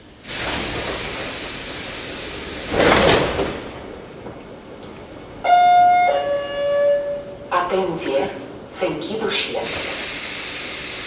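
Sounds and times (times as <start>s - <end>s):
train doors hissing open: 0.0s - 4.1s, 5.4s - 7.4s, 9.2s - 11.0s.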